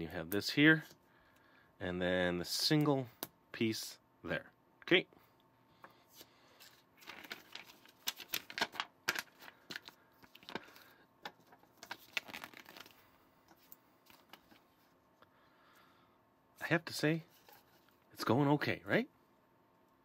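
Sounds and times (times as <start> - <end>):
paper rustling: 6.1 - 14.9.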